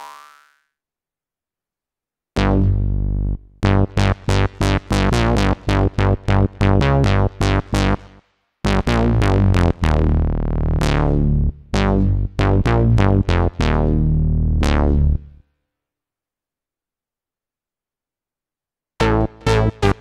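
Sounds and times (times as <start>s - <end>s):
synthesizer bass notes: 2.4s - 15.4s, 19.0s - 20.0s.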